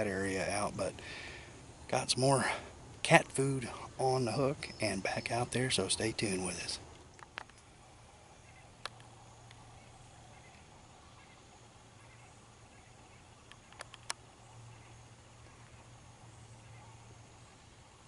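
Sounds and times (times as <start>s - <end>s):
faint low hum: 0.0s - 18.0s
sharp clicks: 6.9s - 7.7s, 8.8s - 9.6s, 13.4s - 14.2s.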